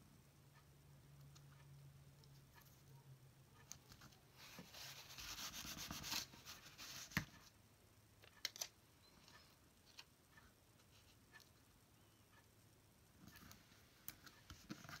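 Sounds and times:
paper rubbing and rustling: 4.4s - 7.3s.

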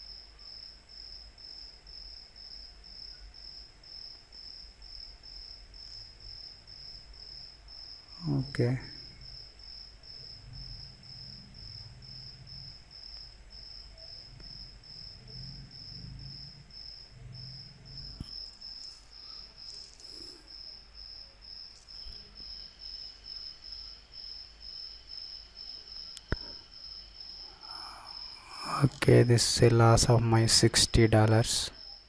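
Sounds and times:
cricket chirping: 0.0s - 32.0s
low hum: 8.3s - 18.6s
sharp click: 26.2s - 26.6s.

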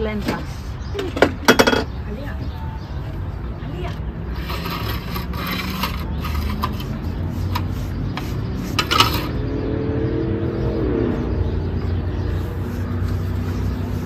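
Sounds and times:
vehicle engine hum: 2.0s - 14.0s
paintbrush scraping on rough wood: 4.0s - 9.5s, 11.6s - 14.0s.

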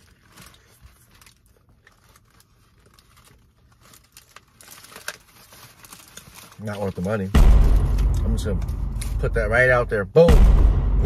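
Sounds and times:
paper wrapper crinkling: 0.0s - 8.1s.

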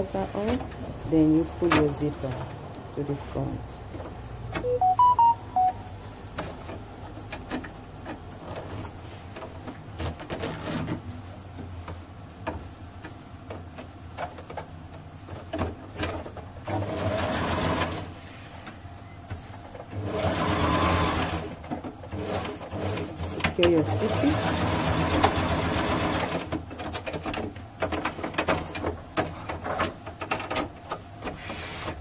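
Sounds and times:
pitched beeps: 4.6s - 5.9s
sewing machine stitching: 16.0s - 18.1s, 19.9s - 27.2s.

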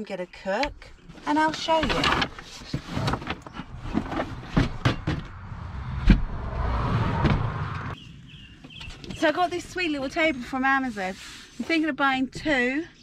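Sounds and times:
scraping and rustling: 1.0s - 5.4s.

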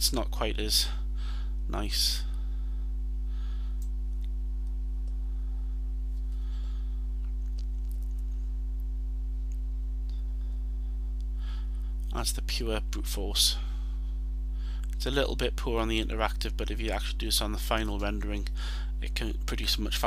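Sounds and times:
electrical mains hum: 0.0s - 20.0s
faint breaths: 0.8s - 1.6s, 2.2s - 3.9s, 5.1s - 7.2s, 10.1s - 12.0s, 13.5s - 14.9s, 18.5s - 19.0s.

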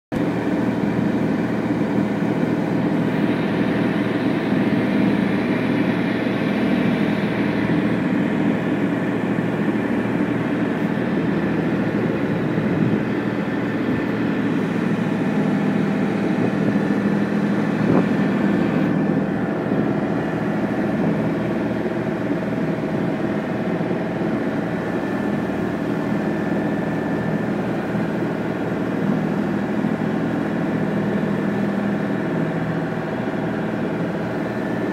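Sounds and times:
boat engine droning: 0.1s - 34.9s
water rushing from wake: 0.1s - 34.9s.

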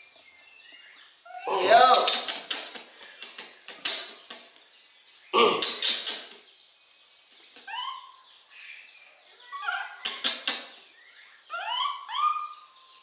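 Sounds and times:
young animal high-pitched calls: 7.6s - 8.2s, 9.4s - 10.1s, 11.4s - 13.0s.

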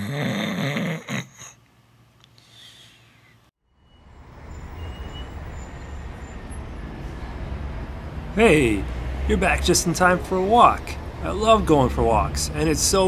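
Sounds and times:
low street rumble at night: 3.7s - 13.0s.

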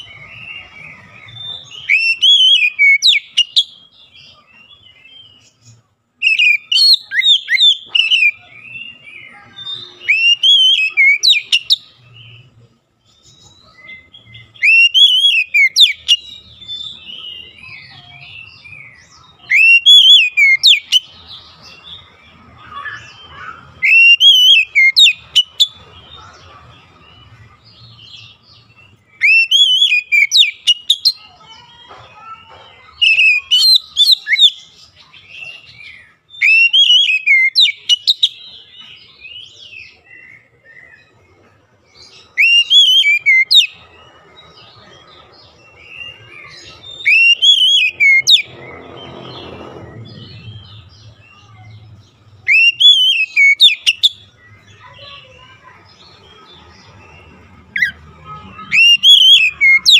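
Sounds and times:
bird singing whistled phrases: 0.0s - 3.8s, 6.2s - 11.9s, 13.6s - 21.1s, 22.6s - 25.8s, 28.8s - 31.2s, 33.0s - 38.6s, 42.3s - 43.8s, 45.9s - 48.5s, 52.4s - 55.1s, 57.7s - 59.9s.

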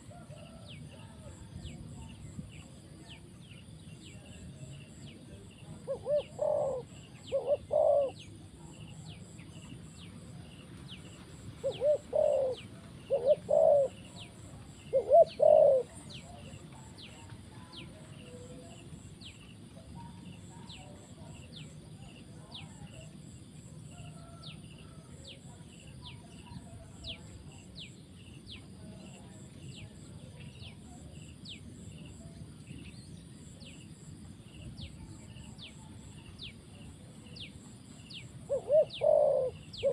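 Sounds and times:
dove cooing: 5.7s - 9.4s, 11.1s - 16.6s, 38.3s - 39.9s.

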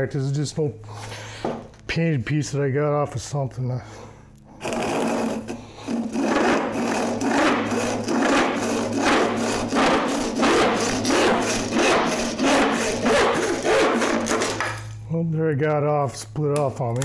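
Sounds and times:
hand saw cutting wood: 4.6s - 14.8s.

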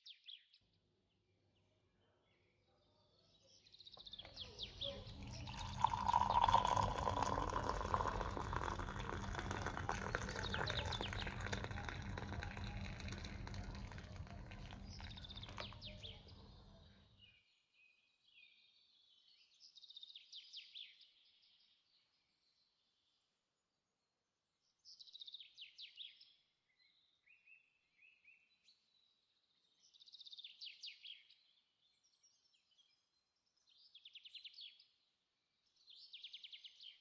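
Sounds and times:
small birds chirping: 1.6s - 17.5s.

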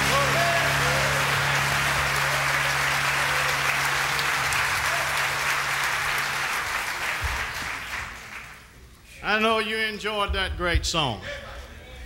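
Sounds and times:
band holding low note: 0.0s - 4.4s
audience applauding: 0.0s - 8.8s.

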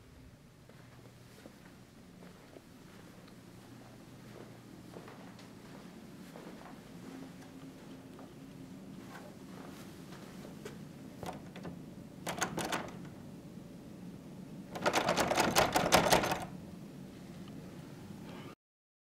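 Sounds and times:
door handle latch rattling: 11.2s - 13.2s, 14.7s - 16.5s.

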